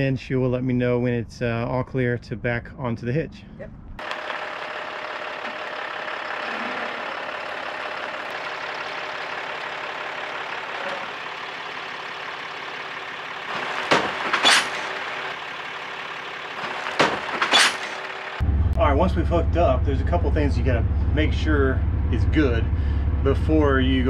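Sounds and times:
pickup truck engine running: 4.0s - 24.0s
metal clanks: 13.5s - 15.1s, 16.5s - 18.0s.

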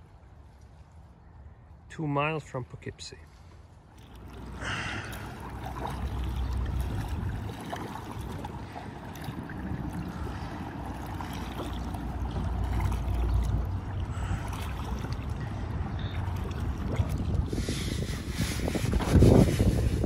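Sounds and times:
river water lapping against hull: 3.2s - 20.0s
paddle splashes: 3.3s - 20.0s
wind rumble on microphone: 3.7s - 20.0s.

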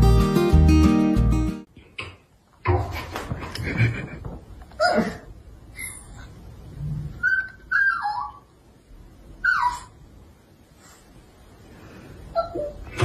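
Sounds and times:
dog whining: 7.2s - 8.5s, 9.4s - 10.0s, 12.3s - 12.9s.

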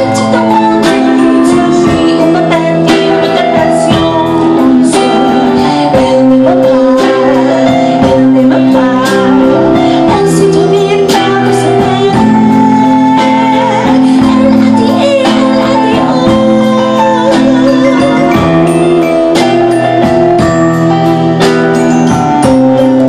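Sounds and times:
bass guitar: 0.0s - 23.0s
electric guitar: 0.0s - 23.0s
keyboard: 0.0s - 23.0s
woman singing: 0.0s - 23.0s
percussion hits: 13.2s - 23.0s.

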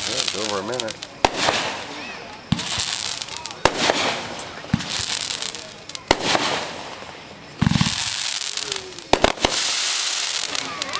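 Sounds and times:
crackling hiss of burning stars: 0.0s - 10.9s
firework shots: 0.0s - 10.9s
firework launch thump: 1.2s - 5.2s, 6.0s - 9.8s.

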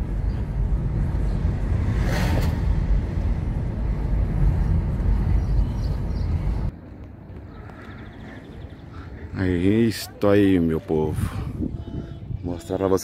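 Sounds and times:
car engine and tyre rumble: 0.0s - 9.8s
outdoor ambience: 0.0s - 13.0s.

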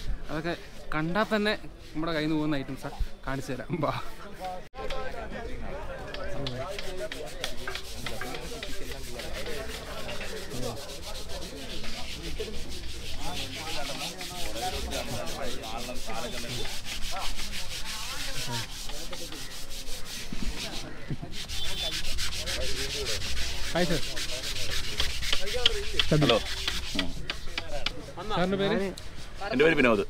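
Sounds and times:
sanding wooden oars: 6.4s - 30.0s.

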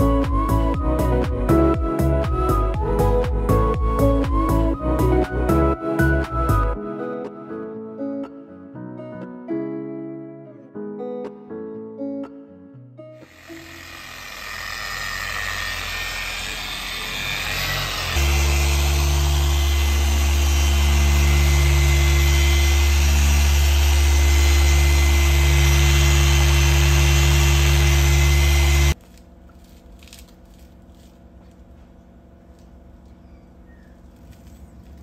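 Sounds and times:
car polisher humming: 13.2s - 29.0s.

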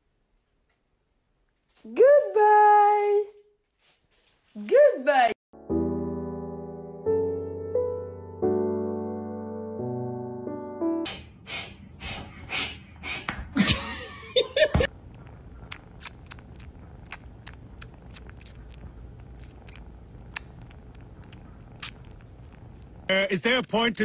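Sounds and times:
piano music: 5.6s - 11.2s
kitten licking wet clicks: 15.1s - 23.1s.

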